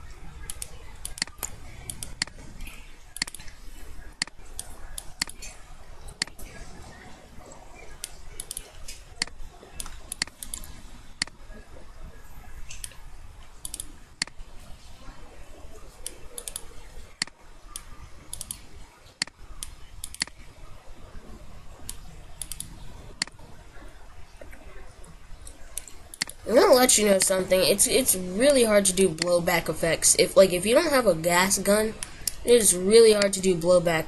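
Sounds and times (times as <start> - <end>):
low steady hum: 0.0 - 34.0
computer mouse clicking: 0.4 - 6.6, 8.0 - 11.4, 12.7 - 14.4, 16.0 - 20.4, 21.8 - 23.4, 25.4 - 26.4.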